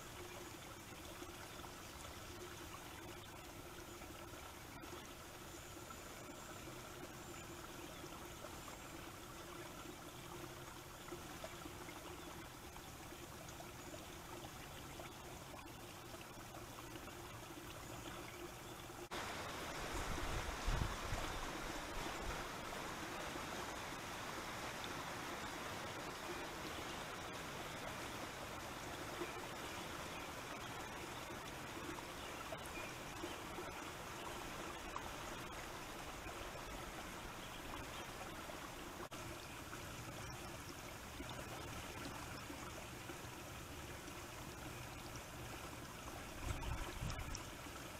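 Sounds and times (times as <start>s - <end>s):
wind on microphone: 19.8s - 22.4s, 46.4s - 47.4s.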